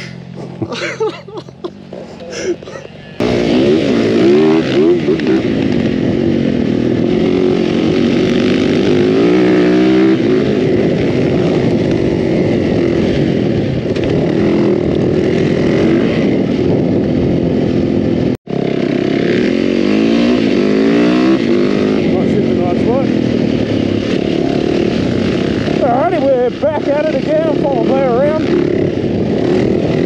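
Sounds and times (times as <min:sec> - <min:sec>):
dirt bike engine revving: 0:00.0 - 0:30.0.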